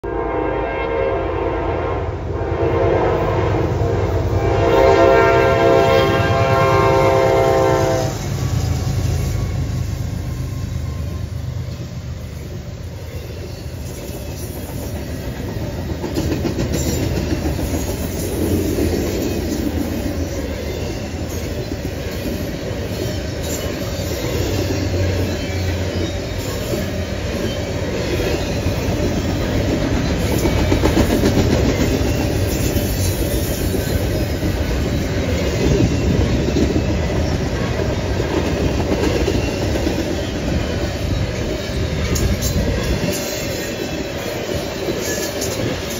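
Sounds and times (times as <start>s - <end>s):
freight train wheels rumbling on rail: 0.1s - 45.9s
wheels clacking over rail joints: 13.1s - 45.9s.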